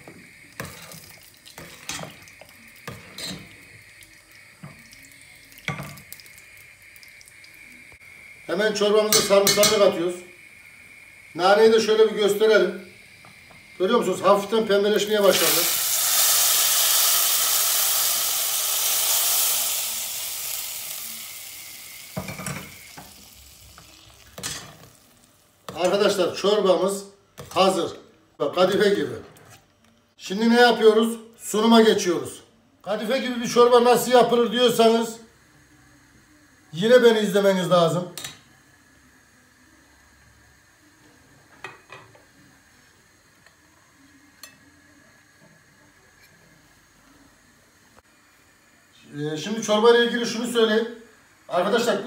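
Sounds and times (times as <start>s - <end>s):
hot oil sizzling in soup: 0.0s - 26.8s, 33.0s - 52.0s
ladle stirring in pot: 0.6s - 3.5s.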